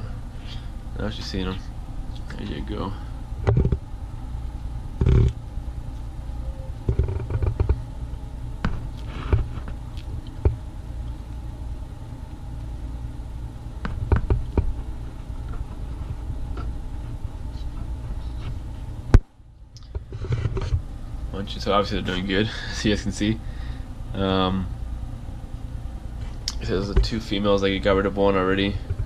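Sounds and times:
camera handling rumble: 6.8s - 7.8s.

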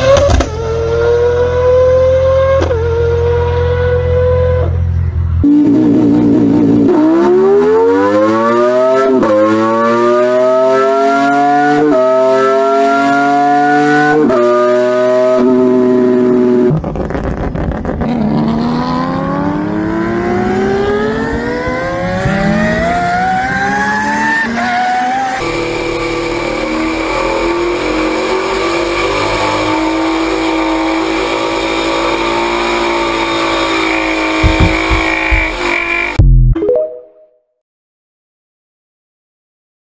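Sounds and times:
rotary engine revving through gears: 17.2s - 36.2s
low thumps: 34.2s - 36.6s.

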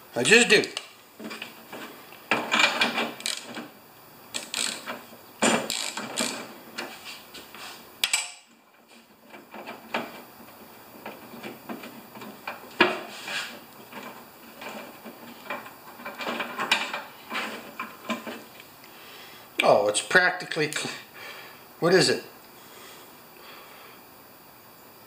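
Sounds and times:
ratchet wrench clicking: 2.6s - 3.6s, 4.3s - 4.9s, 5.6s - 6.5s
sharp metal click: 4.3s - 4.9s.

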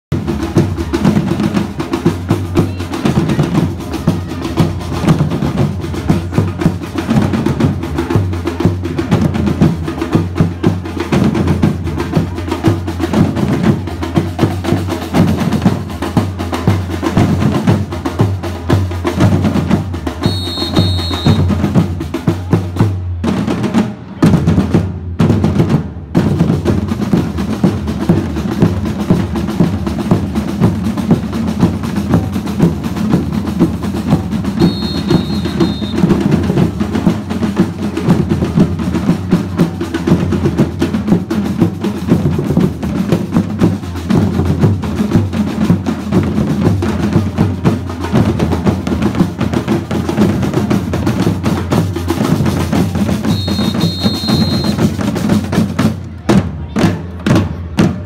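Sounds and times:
drumming on metal barrel drums: 0.1s - 58.0s
short whistle: 20.2s - 21.5s, 34.6s - 36.0s, 53.3s - 54.8s.

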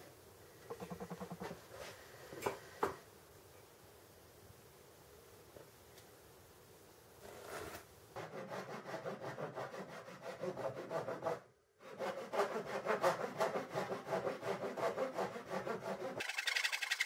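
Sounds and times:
hand saw cutting wood: 7.5s - 16.4s.

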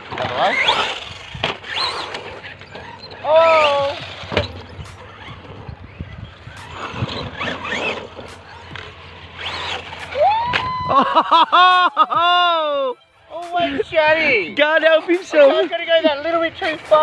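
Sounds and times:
rc truck motor revving: 0.0s - 10.4s.

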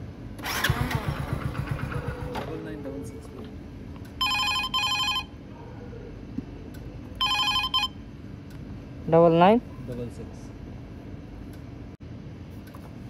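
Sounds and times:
mobile phone ringtone: 4.2s - 5.4s, 7.2s - 8.0s.

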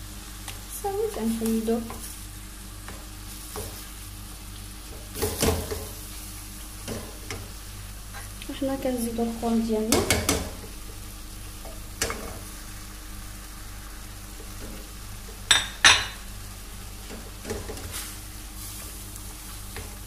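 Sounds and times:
meat sizzling in a pan: 0.0s - 20.0s
spatula knocking against pan: 9.9s - 10.6s.

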